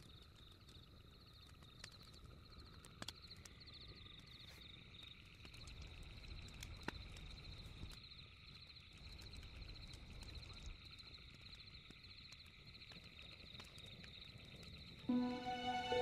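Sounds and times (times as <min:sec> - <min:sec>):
campfire crackling: 0:00.0 - 0:16.0
crickets chirping: 0:00.0 - 0:16.0
music note: 0:15.1 - 0:16.0.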